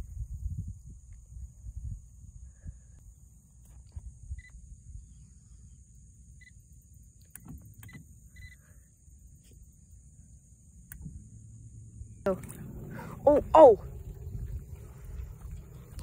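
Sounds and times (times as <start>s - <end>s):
wind rumble on microphone: 0.0s - 5.3s, 10.9s - 16.0s.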